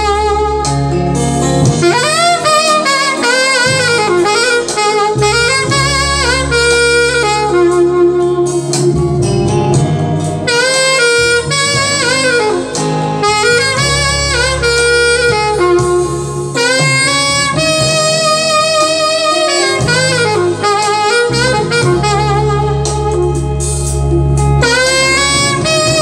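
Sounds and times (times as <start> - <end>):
saxophone melody: 0.0 - 26.0.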